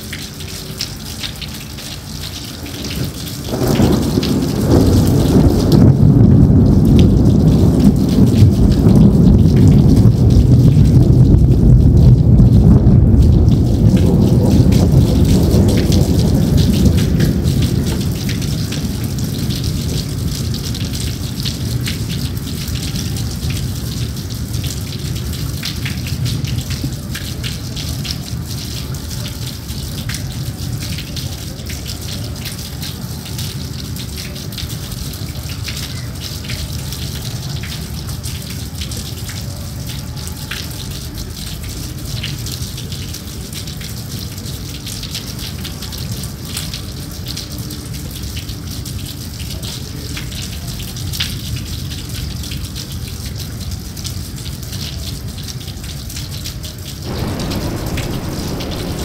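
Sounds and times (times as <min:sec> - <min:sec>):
steady rain hiss: 0:00.0 - 0:51.0, 0:51.9 - 0:59.0
raindrop ticks: 0:00.0 - 0:59.0
low rumble: 0:06.4 - 0:18.0, 0:57.1 - 0:59.0.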